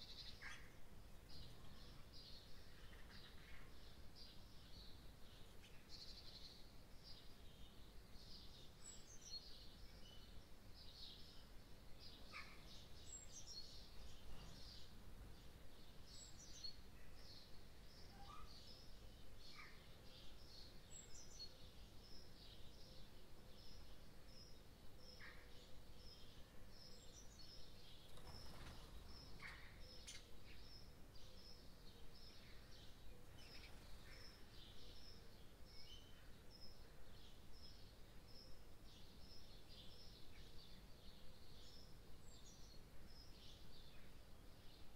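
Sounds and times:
faint high chirp: 18.0s - 18.7s.

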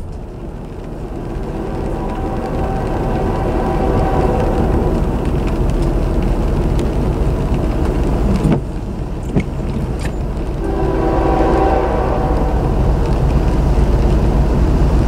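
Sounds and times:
train rumble: 0.0s - 15.0s
locomotive horn chord: 0.6s - 6.2s, 10.5s - 13.4s.

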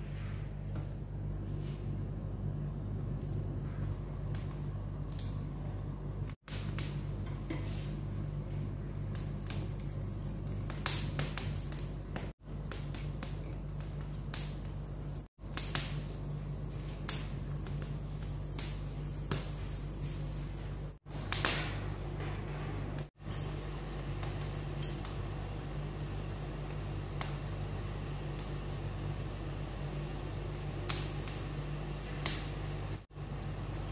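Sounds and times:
gas burner humming: 0.0s - 33.9s
sharp clicks and crackles: 4.2s - 7.4s, 21.3s - 33.8s.

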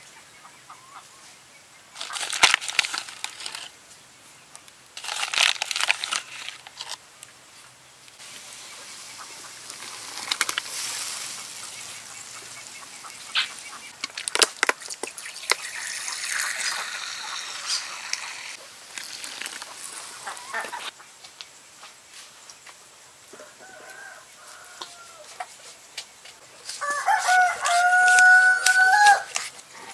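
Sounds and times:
fowl calling: 8.5s - 14.0s, 15.6s - 21.0s
broth boiling and bubbling: 13.8s - 20.2s.

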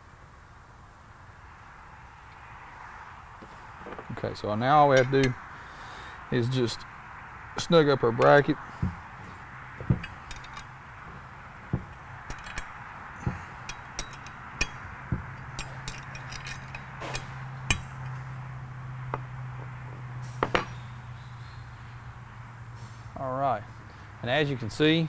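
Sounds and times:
steady low hum: 0.0s - 25.0s
metallic clicks and taps: 11.7s - 18.2s.

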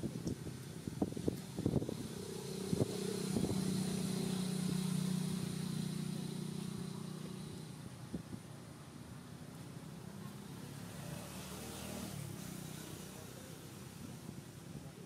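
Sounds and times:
vehicle engine droning past: 1.5s - 8.1s, 10.1s - 13.9s.

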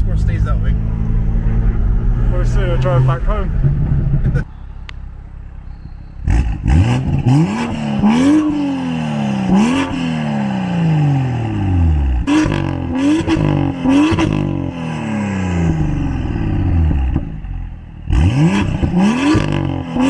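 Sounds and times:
exhaust cracks: 0.0s - 8.6s
car engine revving: 0.0s - 20.0s.

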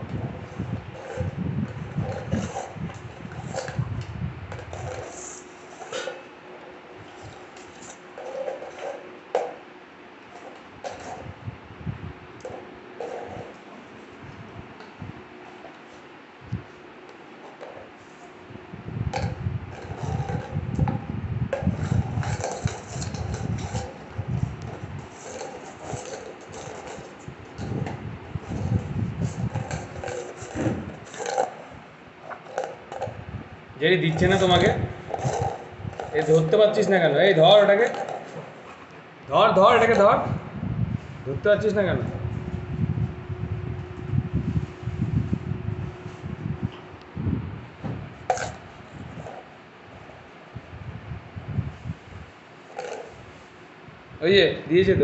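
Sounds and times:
cardboard cup rubbing and scraping: 0.2s - 3.9s, 4.5s - 6.2s, 7.0s - 9.1s, 10.4s - 11.4s, 12.5s - 14.4s, 19.1s - 31.7s, 34.0s - 38.8s
low rumbling: 27.3s - 31.1s, 39.2s - 49.2s.

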